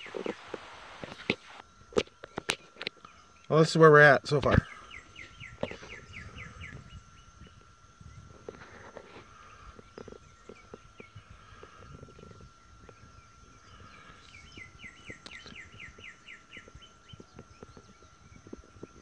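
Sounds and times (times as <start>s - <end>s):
bird chirping: 4.6s - 8.4s, 9.4s - 19.0s.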